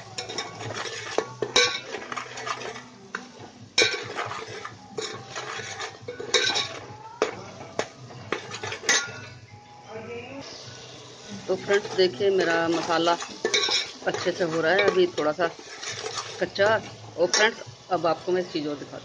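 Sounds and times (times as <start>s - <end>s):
spoon scraping a metal pot: 0.0s - 9.4s, 11.6s - 17.6s.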